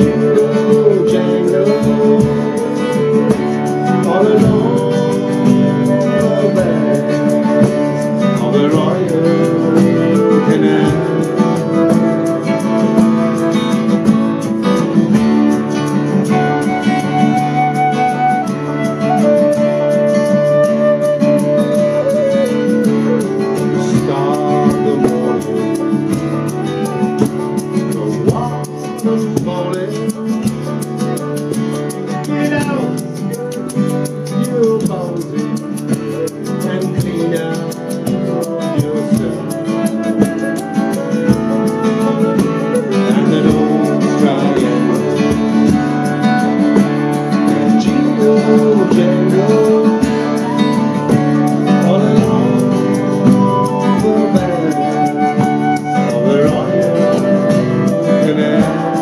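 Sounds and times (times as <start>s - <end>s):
strummed accompaniment: 0.0s - 59.0s
transverse flute melody: 0.0s - 59.0s.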